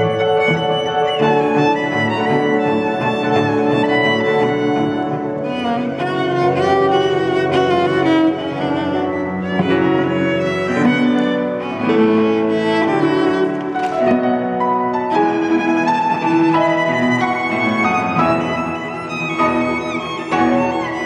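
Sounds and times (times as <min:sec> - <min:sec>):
cello: 0:00.0 - 0:21.0
piano: 0:00.0 - 0:21.0
violin melody: 0:00.0 - 0:21.0.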